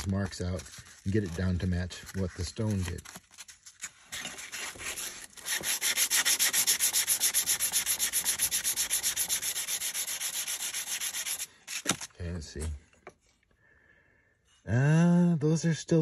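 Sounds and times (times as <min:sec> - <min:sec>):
sandpaper rubbing on metal blade: 0:03.7 - 0:12.1.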